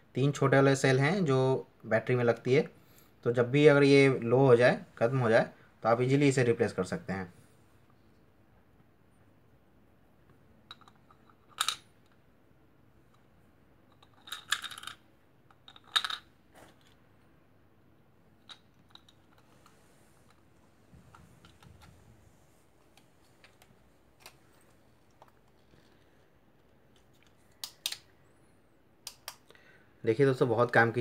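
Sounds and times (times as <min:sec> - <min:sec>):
plastic parts clicking and rattling: 0:10.7 - 0:12.2, 0:13.9 - 0:17.0, 0:18.4 - 0:20.4.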